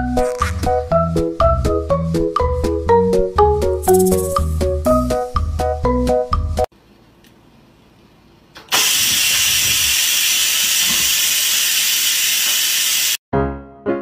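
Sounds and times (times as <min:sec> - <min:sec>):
rice cooker steam hissing: 0:08.7 - 0:13.2.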